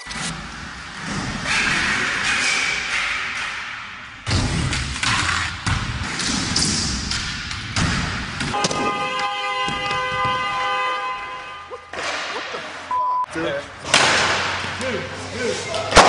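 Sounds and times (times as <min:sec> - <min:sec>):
skateboard impacts and landings: 0:04.2 - 0:10.6
skateboard wheels rolling on wooden ramps: 0:04.2 - 0:10.8.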